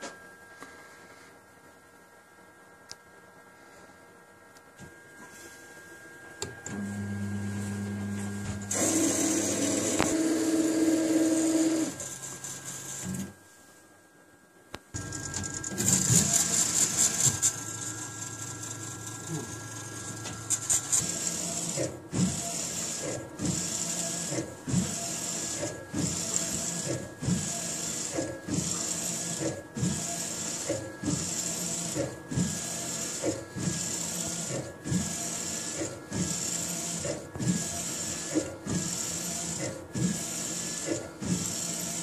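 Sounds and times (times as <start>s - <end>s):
printer whirring: 4.8s - 13.4s, 14.9s - 42.0s.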